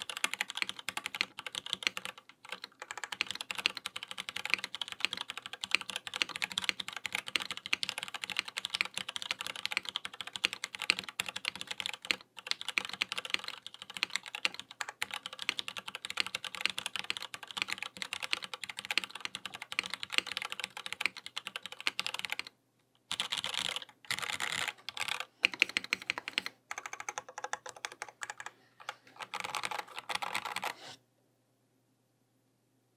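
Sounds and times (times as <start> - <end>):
mechanical keyboard typing: 0.0 - 22.5, 23.1 - 30.8.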